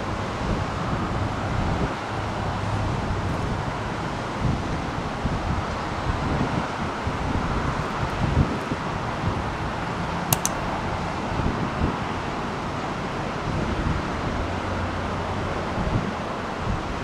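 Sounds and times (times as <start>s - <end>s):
short sharp clicks: 10.3s - 10.6s.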